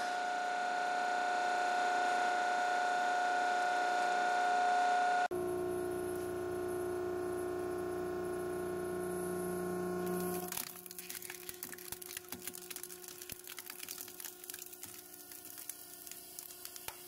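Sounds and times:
plastic and metal cracking: 10.4s - 17.0s.

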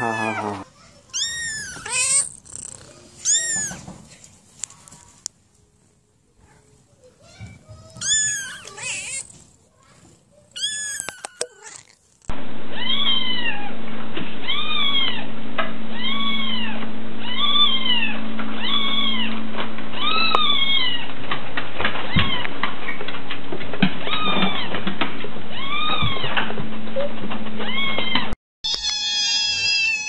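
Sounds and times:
kittens mewing: 0.0s - 3.9s, 7.9s - 9.4s, 10.4s - 13.5s, 28.7s - 30.0s
steady low hum: 15.2s - 21.8s.

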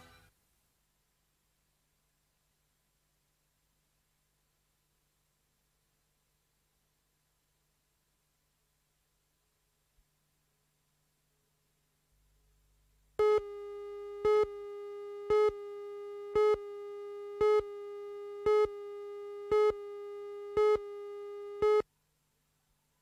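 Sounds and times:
countdown pips: 13.2s - 21.8s
steady mid-pitched tone: 13.2s - 21.8s.

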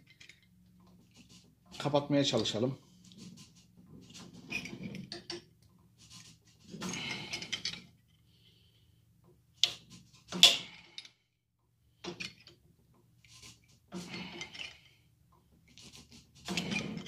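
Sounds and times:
metal tube scraping in vise: 13.2s - 15.0s, 15.7s - 17.0s.

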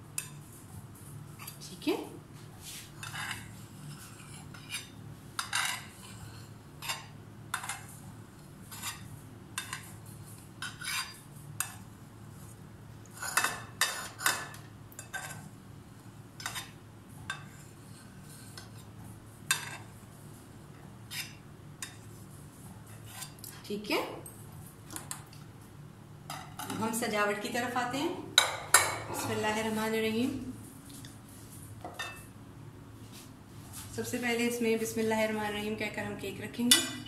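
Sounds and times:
knife scraping a plate: 2.6s - 6.2s, 8.6s - 11.8s, 12.4s - 15.5s, 21.1s - 22.2s, 22.9s - 23.4s.

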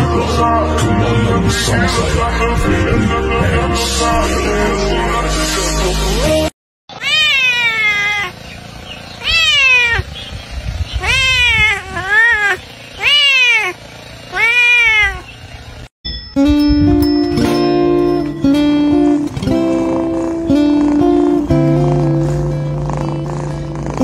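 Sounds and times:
music: 0.0s - 6.5s, 16.1s - 24.0s
cat meowing: 6.9s - 8.4s, 9.2s - 10.1s, 11.0s - 15.3s.

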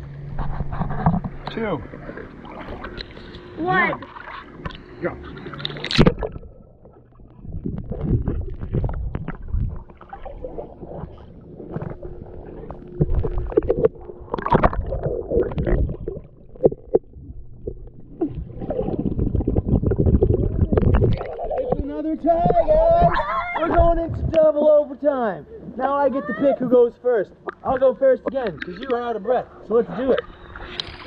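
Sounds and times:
underwater churning water: 0.0s - 24.4s, 29.9s - 31.0s
underwater knocks and bumps: 0.3s - 1.6s, 5.8s - 24.4s.

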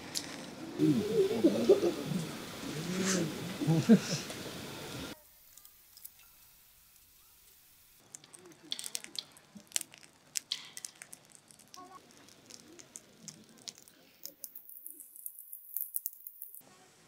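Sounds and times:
firewood crackling and popping: 5.4s - 16.6s.

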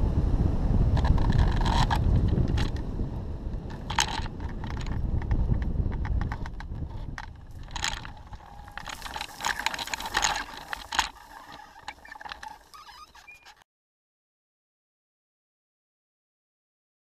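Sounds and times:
wind buffeting microphone: 0.0s - 13.6s
crackling and rattling in grass: 0.9s - 13.6s.

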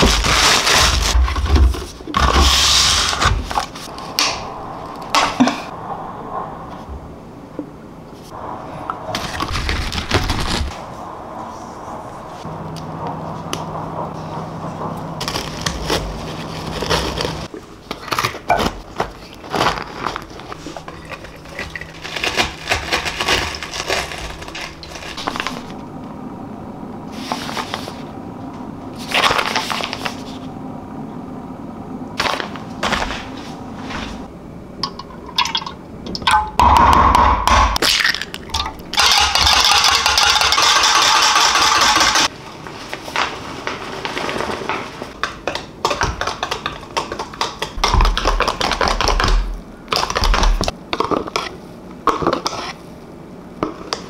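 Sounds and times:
plastic packaging crinkling: 15.4s - 25.8s
wire whisk beating batter: 39.0s - 42.3s.

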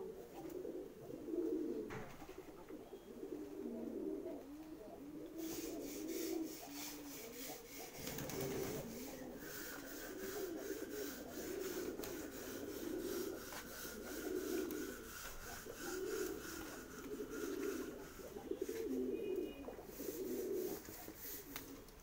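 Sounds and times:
pigeons cooing: 0.0s - 22.0s
rapid scratchy rasping: 5.4s - 18.9s.

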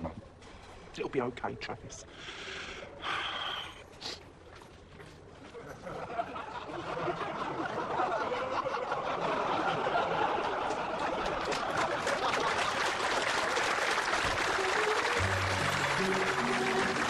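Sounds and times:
audience applauding: 9.8s - 17.0s.

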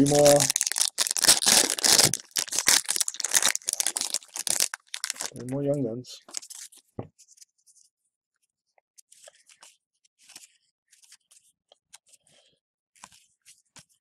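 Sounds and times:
trading cards rustling: 0.0s - 5.6s, 6.2s - 6.8s.

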